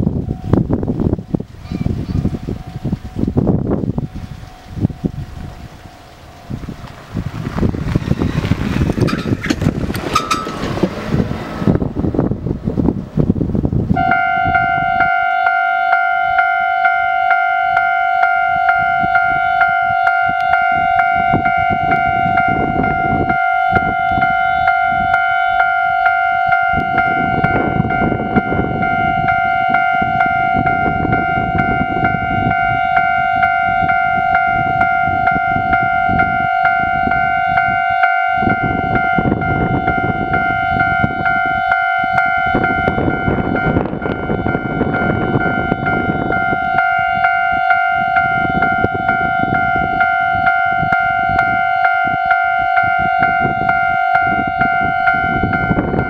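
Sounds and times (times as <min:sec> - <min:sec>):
wind noise on microphone: 0:00.0 - 0:56.0
level crossing alarm ringing: 0:09.0 - 0:10.9, 0:13.9 - 0:56.0.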